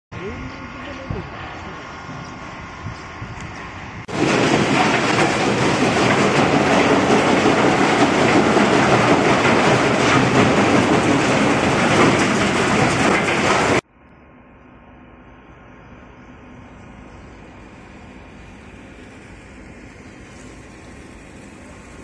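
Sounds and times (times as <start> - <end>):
machinery rattling clatter: 3.4 - 13.8.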